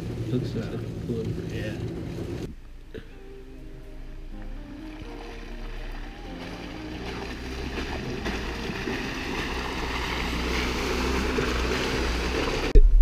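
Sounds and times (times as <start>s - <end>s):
vehicle engine: 0.0s - 12.8s
tyres through muddy water: 4.1s - 12.8s.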